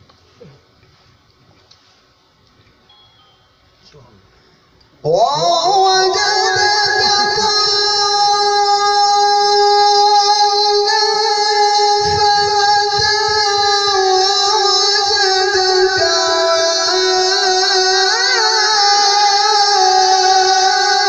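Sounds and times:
man reciting melodically: 5.0 - 21.0.

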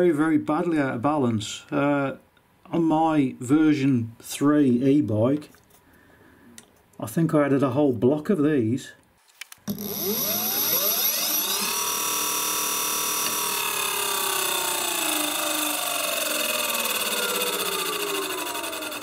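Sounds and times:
electric motor whine: 9.7 - 19.0.

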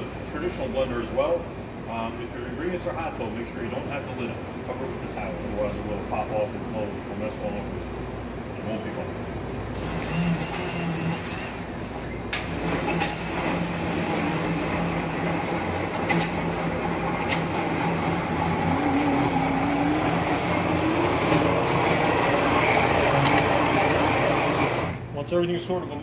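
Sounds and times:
immersion blender motor hum: 9.8 - 11.2, 16.6 - 25.0.

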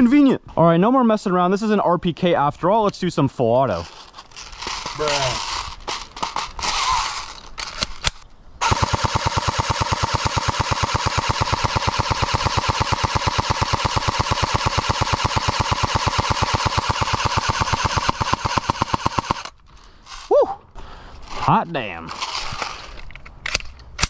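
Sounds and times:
airsoft gun full auto fire: 6.6 - 7.3, 8.6 - 19.5.

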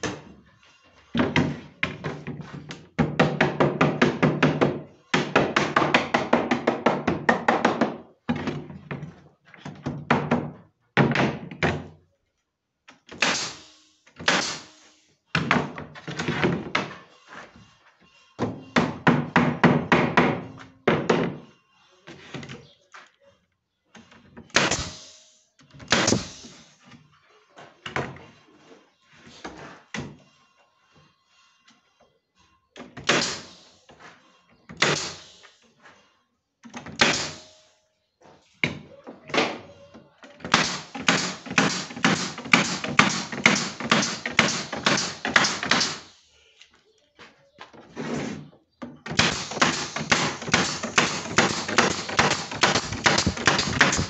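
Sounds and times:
pin nailer firing: 13.1 - 14.8, 24.5 - 25.2, 25.8 - 26.6, 33.0 - 33.8, 34.8 - 35.4, 36.9 - 37.6, 40.5 - 46.2, 49.1 - 54.0.

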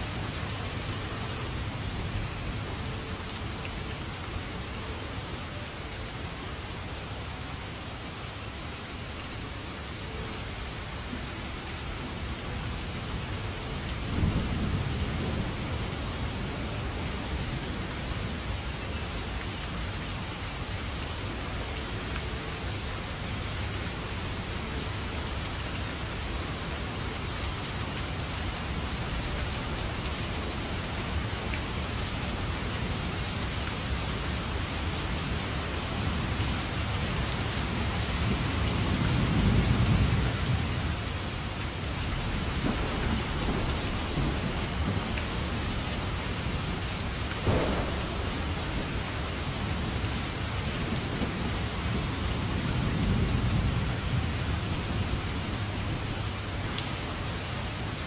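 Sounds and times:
heavy rain pouring: 0.0 - 58.0
thunder rumbling: 42.2 - 55.9.

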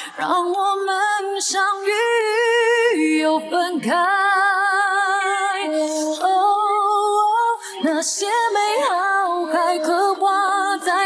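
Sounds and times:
woman singing wordless ballad: 0.0 - 11.0.

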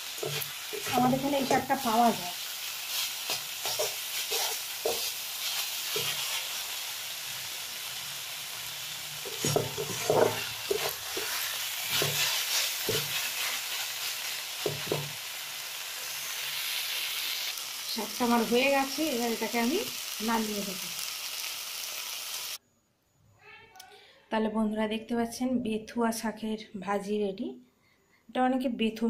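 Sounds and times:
greens sizzling in oil: 0.0 - 22.6
wooden spatula scraping pan: 2.9 - 6.6, 9.2 - 13.8.

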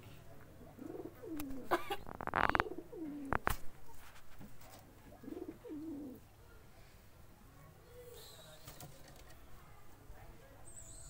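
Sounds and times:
pigeons cooing: 0.6 - 3.6, 4.6 - 6.2.

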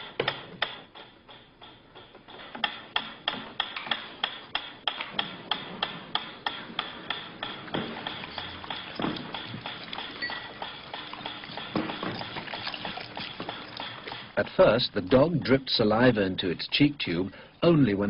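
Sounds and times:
metronome ticking: 6.1 - 18.0.

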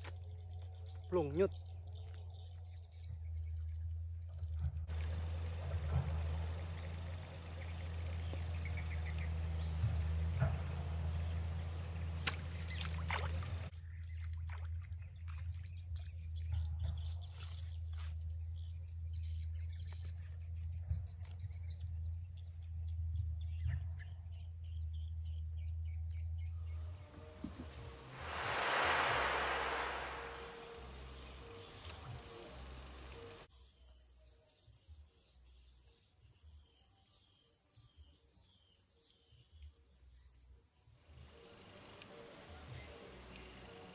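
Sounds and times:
high-pitched insect drone: 4.9 - 13.7, 26.7 - 33.5, 41.3 - 43.9
low rumble: 26.6 - 33.5
loud rushing sound: 27.0 - 33.5.

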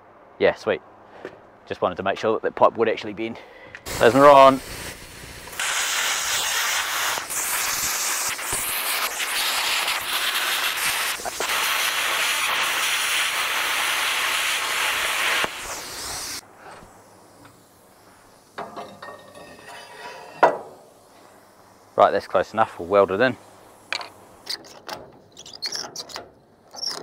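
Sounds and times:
plasma cutter hissing: 3.9 - 24.4.

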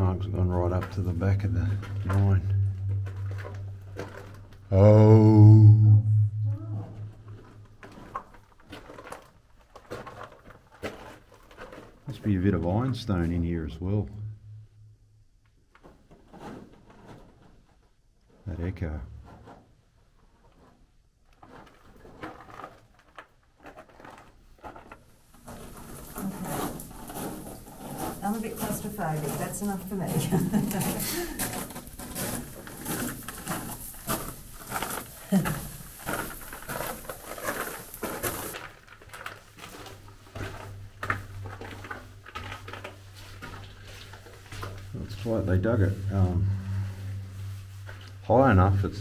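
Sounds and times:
footsteps echoing in a tunnel: 0.3 - 4.7, 5.8 - 14.9, 23.7 - 48.8.

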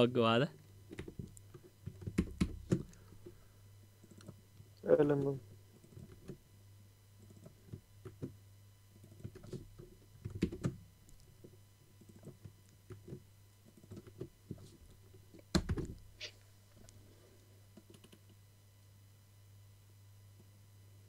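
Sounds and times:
low steady hum: 0.0 - 21.0
typing on computer keyboard: 10.2 - 10.8, 17.8 - 18.4.

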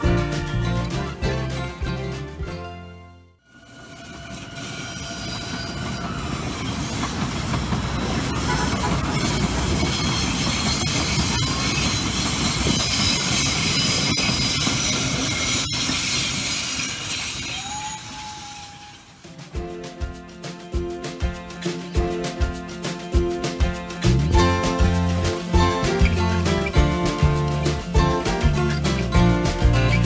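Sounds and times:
high wheel squeal: 3.5 - 19.4
train wheels rumbling on rails: 3.5 - 30.0.

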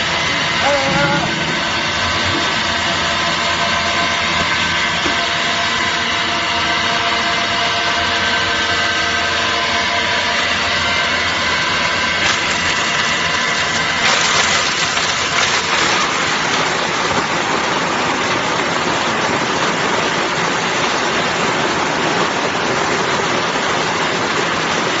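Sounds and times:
coconut grating machine grinding: 0.0 - 18.8.

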